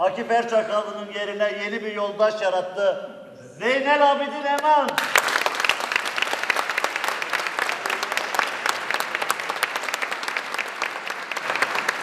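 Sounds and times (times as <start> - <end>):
audience applauding: 4.9 - 12.0.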